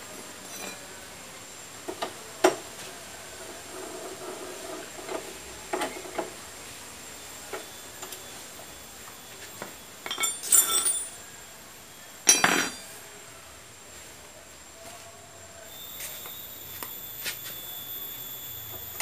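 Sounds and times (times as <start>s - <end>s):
metal tools clinking: 10.0s - 11.2s, 12.3s - 12.8s.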